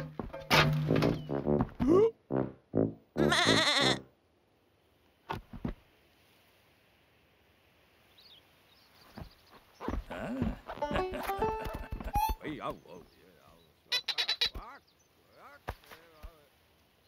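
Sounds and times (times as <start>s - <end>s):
cartoon sheep bleating: 3.2s - 4.1s.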